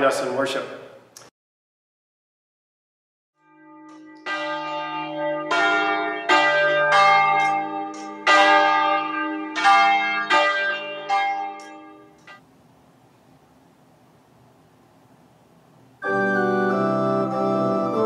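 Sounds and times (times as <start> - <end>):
church bells ringing: 3.4 - 12.4.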